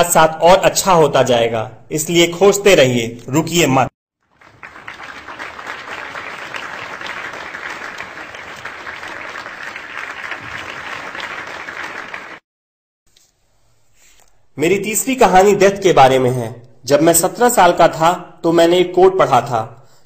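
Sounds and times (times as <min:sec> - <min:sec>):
audience applauding: 0:04.3 - 0:12.4.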